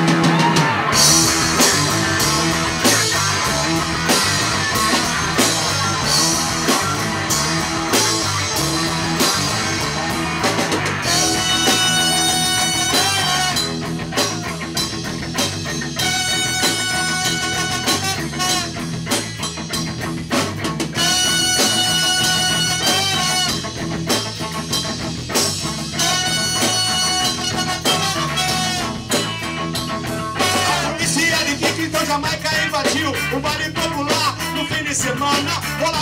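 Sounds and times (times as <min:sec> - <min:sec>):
rock band playing: 0:00.0 - 0:36.0
trumpet notes: 0:11.1 - 0:13.9, 0:16.0 - 0:18.9, 0:21.0 - 0:23.8, 0:25.9 - 0:29.5, 0:30.3 - 0:31.0.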